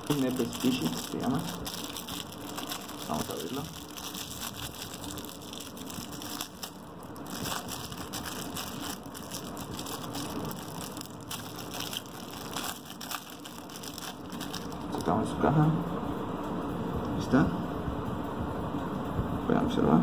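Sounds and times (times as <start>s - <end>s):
plastic bag crinkling: 0.0s - 15.1s.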